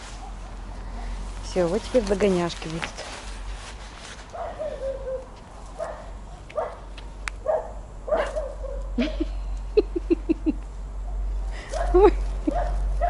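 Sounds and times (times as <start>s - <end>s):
puppy whining: 4.4s - 5.4s
puppy yipping: 4.4s - 6.8s, 7.4s - 8.9s.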